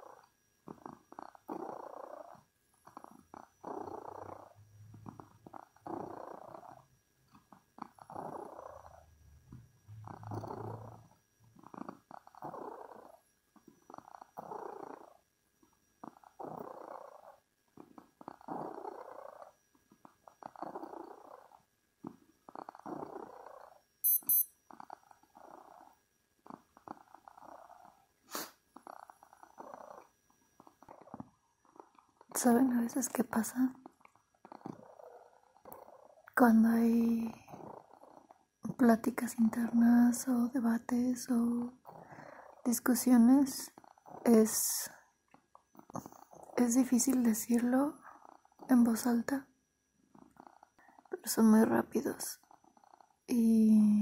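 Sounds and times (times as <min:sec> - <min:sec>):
cat purring: 0:00.0 - 0:24.0, 0:24.7 - 0:54.0
high-pitched electronic beep: 0:24.0 - 0:24.5.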